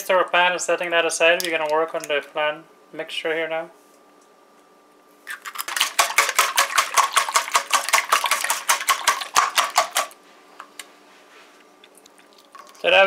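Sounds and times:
utensil clinking in metal bowl: 5.4s - 10.1s.

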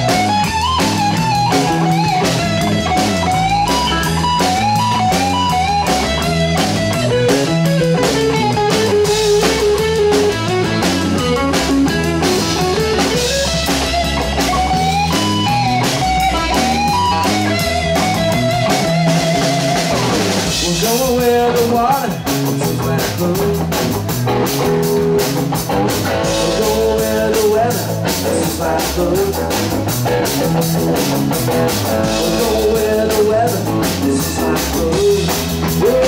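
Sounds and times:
drum kit beat: 0.0s - 36.0s
electric guitar lead melody: 0.0s - 36.0s.

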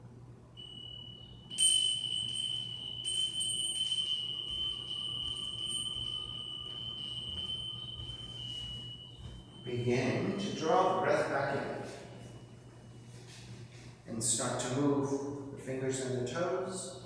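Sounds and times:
small metal bell ringing: 0.6s - 11.0s.

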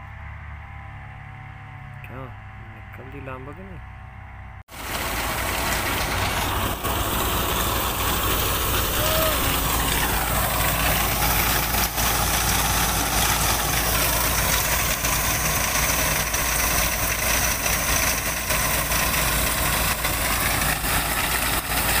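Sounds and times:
combine harvester running: 0.0s - 22.0s
grain pouring from auger: 4.7s - 22.0s.

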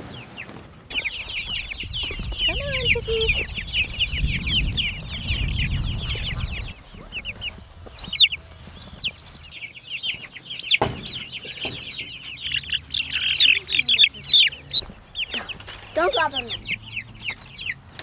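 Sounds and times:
baby chicks peeping: 0.0s - 18.0s
low rumble: 1.0s - 9.5s.

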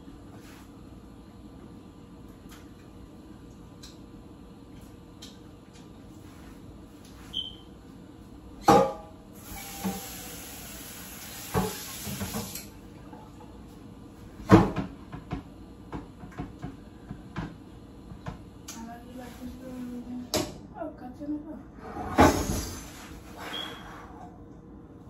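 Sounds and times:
running tap hiss: 9.4s - 12.8s
knock on kitchen counter: 14.5s - 17.6s.

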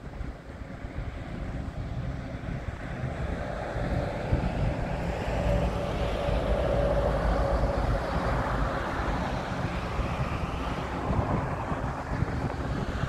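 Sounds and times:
ship engine rumble: 0.0s - 13.0s.

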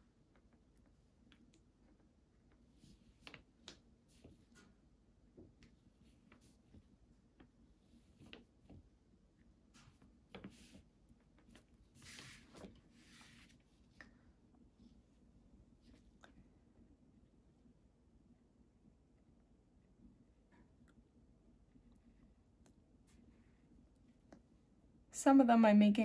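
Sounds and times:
brush dabbing paint on paper: 9.7s - 13.9s
paper sheet rustling: 11.9s - 13.6s.

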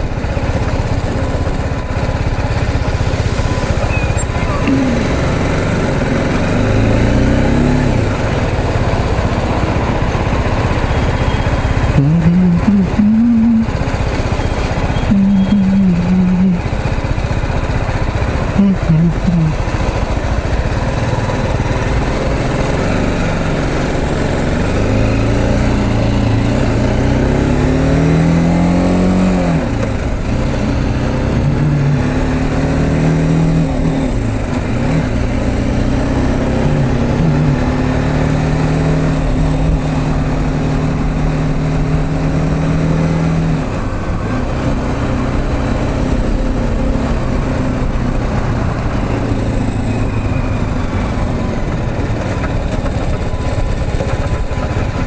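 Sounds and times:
motorcycle engine riding: 0.0s - 55.0s
wind and road noise: 0.0s - 55.0s.

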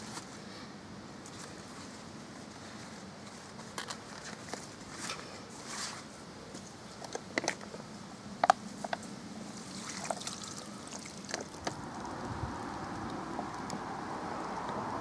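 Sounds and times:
handling clicks and knocks: 6.5s - 7.8s.

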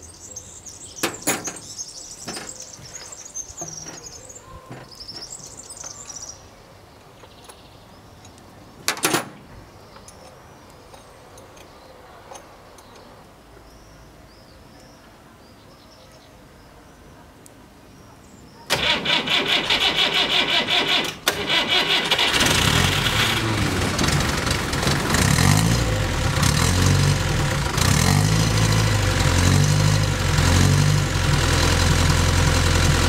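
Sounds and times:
small birds chirping: 0.0s - 8.9s.

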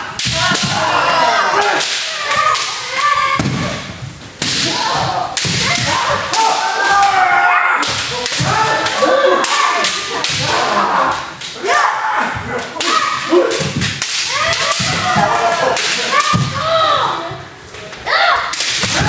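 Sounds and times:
loud shouts: 0.0s - 3.9s, 4.6s - 17.4s
bamboo swords clacking: 0.1s - 3.7s, 4.3s - 7.2s, 7.8s - 11.8s, 12.6s - 16.6s, 18.4s - 19.0s.

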